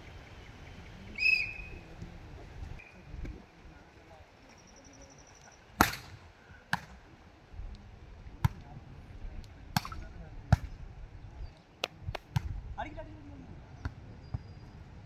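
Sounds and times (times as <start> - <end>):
volleyball being slapped: 5.8 - 7.0, 8.4 - 8.7, 9.7 - 10.7, 11.8 - 12.6.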